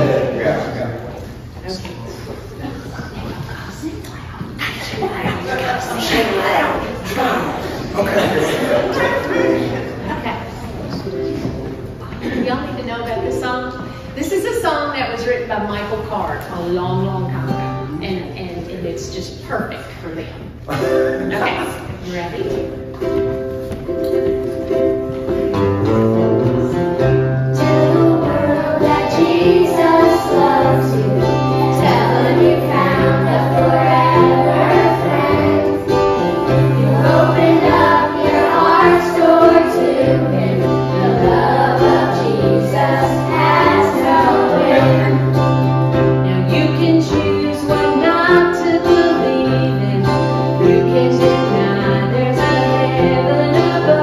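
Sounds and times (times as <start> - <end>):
children's choir singing: 0.0 - 0.8, 27.5 - 54.0
acoustic guitar: 0.0 - 54.0
low bass notes: 25.6 - 46.9
woman singing: 27.6 - 45.4, 46.2 - 54.0.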